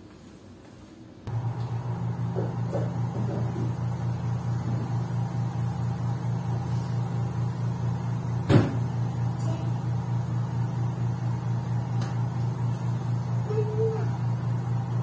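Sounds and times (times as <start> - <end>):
washing machine door clunk: 8.4 - 8.9.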